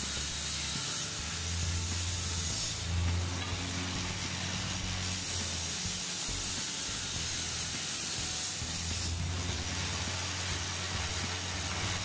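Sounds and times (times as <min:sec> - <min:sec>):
table saw ripping board: 0:00.6 - 0:12.0.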